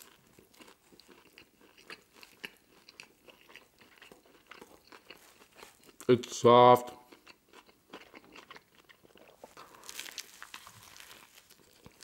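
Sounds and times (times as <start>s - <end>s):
chewing: 0.0s - 6.1s, 7.0s - 12.0s
biting into sandwich: 7.2s - 12.0s.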